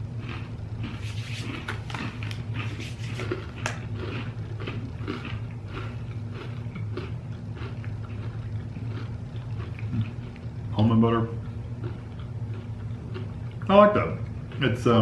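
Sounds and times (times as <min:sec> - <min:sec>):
crunchy granola bar chewing: 0:00.0 - 0:15.0
steady low hum: 0:00.0 - 0:15.0.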